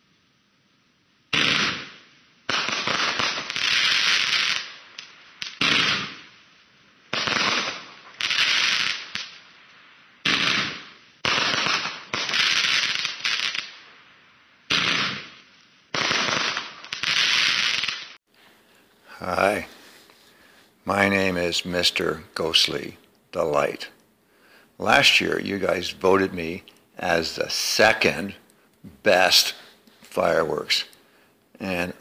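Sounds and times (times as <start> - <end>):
fireworks cake firing bangs: 1.3 - 4.7, 5.4 - 6.3, 7.1 - 9.3, 10.2 - 13.7, 14.7 - 18.2.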